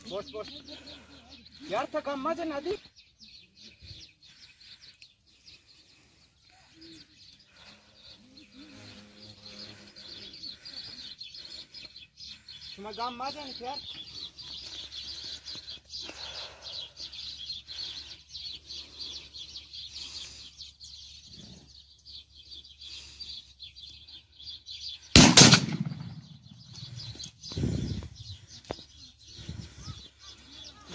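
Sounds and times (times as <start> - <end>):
starlings chattering: 0.0 - 30.9
shotgun shot: 25.2 - 26.4.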